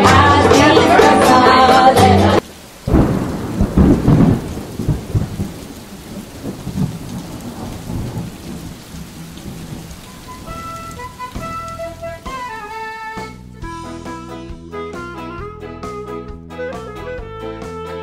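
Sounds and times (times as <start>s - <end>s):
music: 0.0s - 2.4s, 10.0s - 18.0s
steady rain: 0.0s - 13.7s
thunder rumbling: 2.4s - 11.8s.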